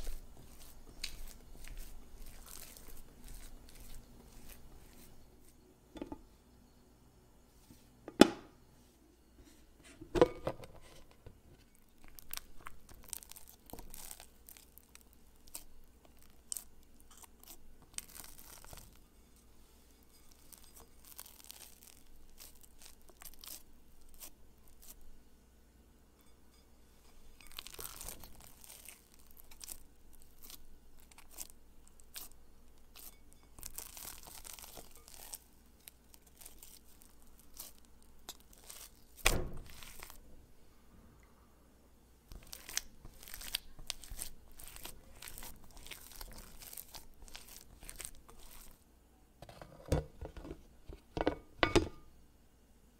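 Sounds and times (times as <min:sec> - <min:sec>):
dough tearing and squelching: 0:00.0 - 0:05.2, 0:11.8 - 0:19.1, 0:20.0 - 0:25.1, 0:27.3 - 0:40.3, 0:42.3 - 0:48.8.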